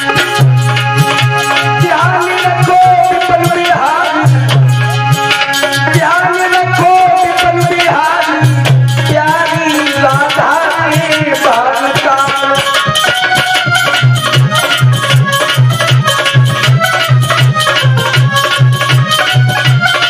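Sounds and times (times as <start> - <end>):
man singing: 0.0 - 13.8
hand drum beating: 0.0 - 20.0
harmonium chords: 0.0 - 20.0.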